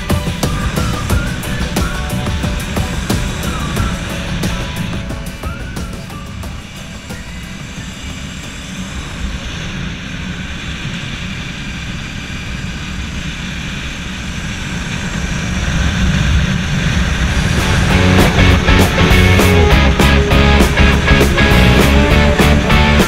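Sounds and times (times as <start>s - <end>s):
motorcycle engine running: 0.0s - 23.0s
wind rushing over microphone: 0.0s - 23.0s.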